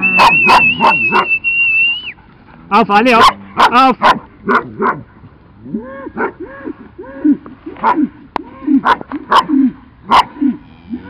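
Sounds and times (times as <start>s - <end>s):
dog yelping: 0.0s - 2.1s
dog barking: 0.2s - 1.4s, 3.2s - 5.0s, 6.2s - 6.4s, 7.8s - 8.1s, 8.8s - 10.4s.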